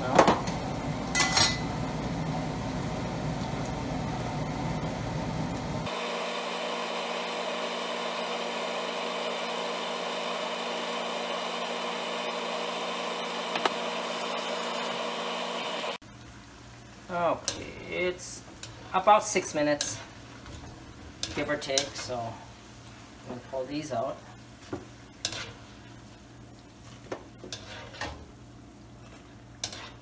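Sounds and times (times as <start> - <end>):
oil sizzling in a wok: 0.4 - 30.0.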